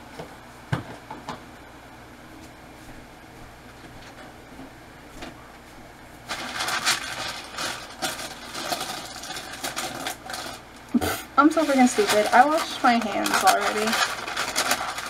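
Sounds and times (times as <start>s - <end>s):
steady room hum: 0.0s - 15.0s
rustling and scraping of food prep: 3.8s - 15.0s.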